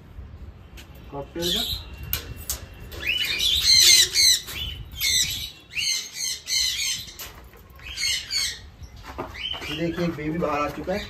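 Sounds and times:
parrots squawking: 3.0s - 7.2s.

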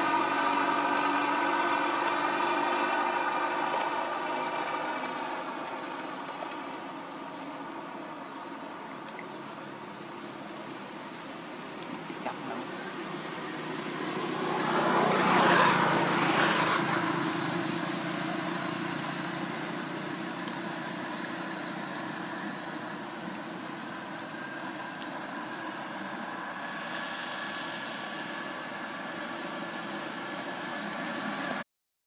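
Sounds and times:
road vehicle passing by: 0.0s - 7.8s, 10.3s - 31.6s.

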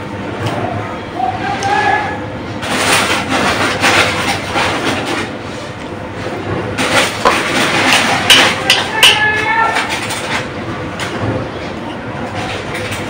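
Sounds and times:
sharp knocks and clatters: 6.4s - 9.2s.

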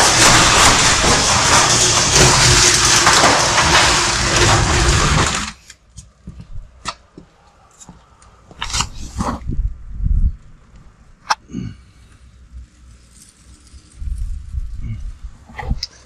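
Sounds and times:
garage door opener rumbling: 0.0s - 5.7s.

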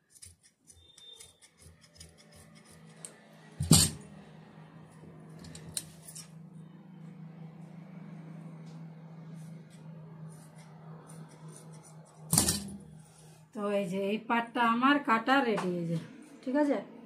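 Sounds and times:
low hum: 2.9s - 15.0s.

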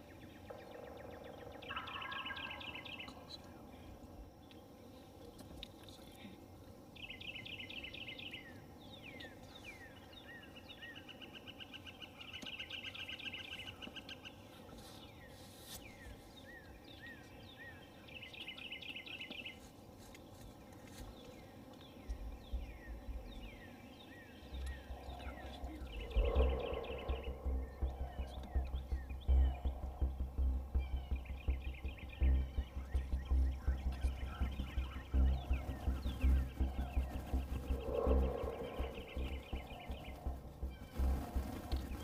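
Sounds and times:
songbirds singing: 0.0s - 42.0s
wind buffeting microphone: 22.1s - 23.7s, 24.5s - 42.0s.

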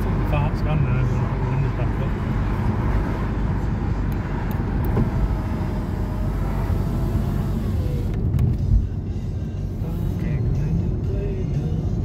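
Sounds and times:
car engine running: 0.0s - 12.0s
tyres rumbling on tarmac: 0.0s - 12.0s.

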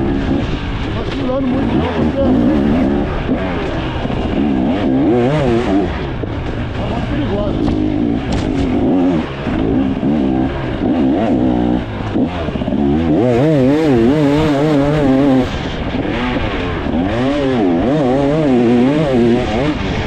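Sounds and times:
dirt bike engine revving: 0.0s - 20.0s.

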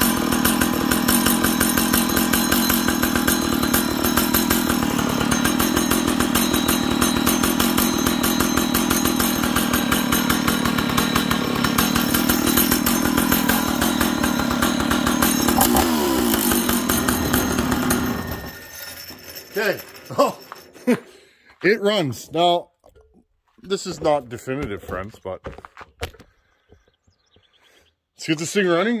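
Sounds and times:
chainsaw engine running: 0.0s - 22.4s.

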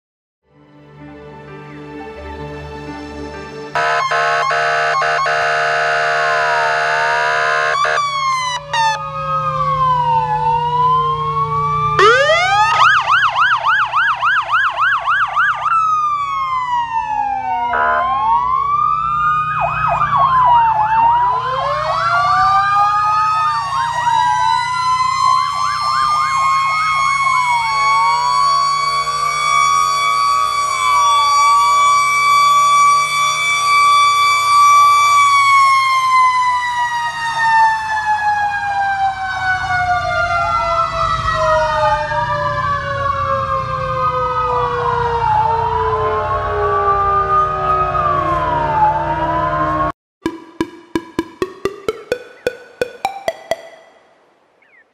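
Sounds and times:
steady blaring tone: 3.8s - 9.0s
sirens wailing and yelping: 3.8s - 49.9s.

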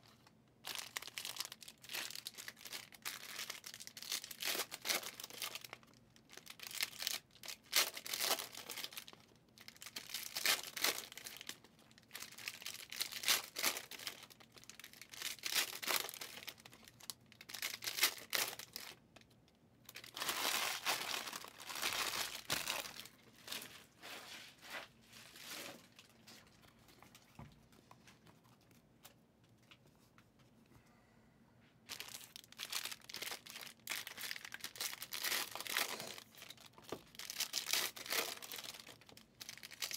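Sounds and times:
card wrappers crinkling and tearing: 0.2s - 19.0s, 19.9s - 23.7s, 31.9s - 39.9s.

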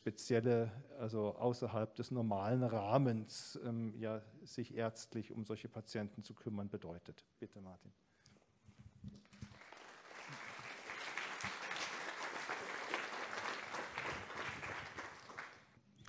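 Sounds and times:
audience applauding: 9.2s - 15.8s.

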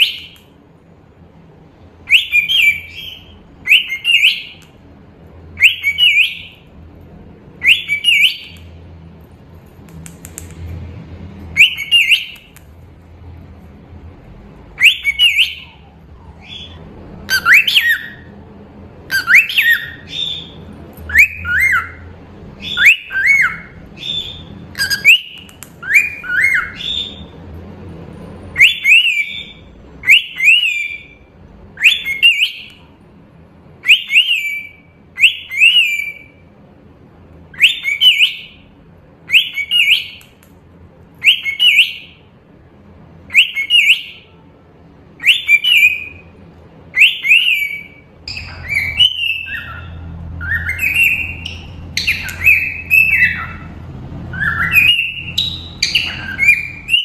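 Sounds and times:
cockatiel whistling chirps: 2.1s - 4.7s, 5.6s - 6.6s, 7.6s - 8.6s, 11.6s - 12.5s, 14.8s - 18.3s, 19.1s - 22.0s, 22.6s - 27.3s, 28.6s - 31.2s, 31.8s - 32.9s, 33.8s - 36.3s, 37.6s - 38.6s, 39.3s - 40.3s, 41.2s - 42.2s, 43.3s - 44.3s, 45.2s - 46.2s, 47.0s - 53.7s, 54.3s - 57.0s.

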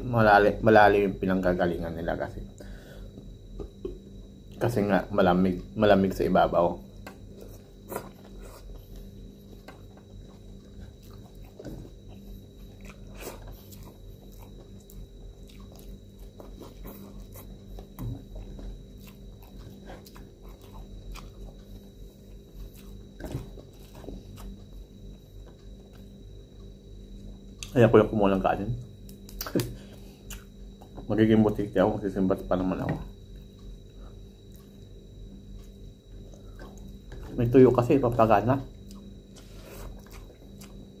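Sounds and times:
faint steady hum: 0.0s - 41.0s
chewing and lip smacks: 7.8s - 24.7s, 39.8s - 41.0s.

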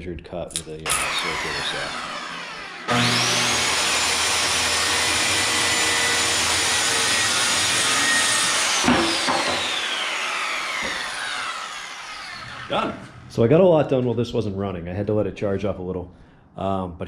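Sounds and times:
saw blade spinning down: 0.6s - 13.3s
circular saw whining: 0.6s - 13.6s
off-cut knocking on floor: 8.8s - 9.7s, 10.8s - 11.1s.

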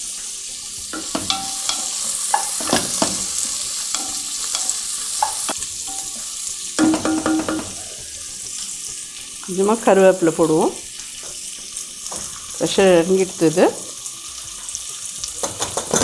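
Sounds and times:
onions sizzling in oil: 0.0s - 16.0s
spatula scraping pan: 1.0s - 8.2s.

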